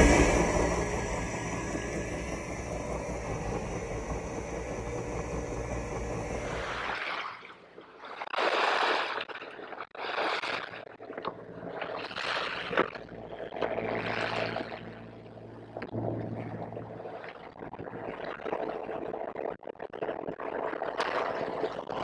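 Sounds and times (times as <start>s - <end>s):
low steady hum: 0.0s - 7.8s, 11.1s - 19.3s
water splashing along a hull: 0.0s - 22.0s.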